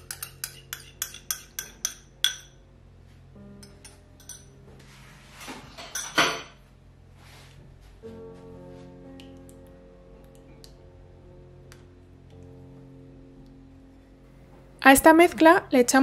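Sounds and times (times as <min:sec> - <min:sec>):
spatula scraping glass bowl: 0:00.0 - 0:01.9
soft background music: 0:00.0 - 0:16.0.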